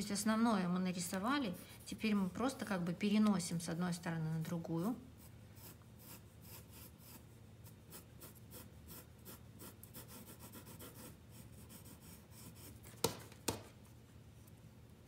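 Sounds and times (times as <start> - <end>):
pencil scratching on paper: 4.8 - 13.0.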